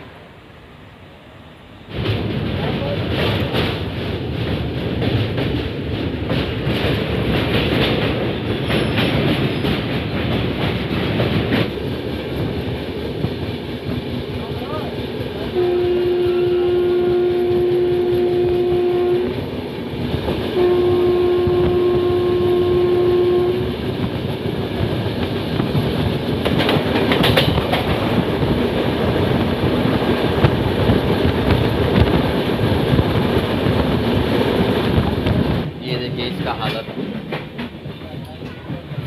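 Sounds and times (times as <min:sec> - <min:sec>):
train rumbling: 0:00.0 - 0:39.0
wheels clattering over rails: 0:01.9 - 0:15.5, 0:23.8 - 0:39.0
train horn blasts: 0:15.5 - 0:19.4, 0:20.6 - 0:23.8.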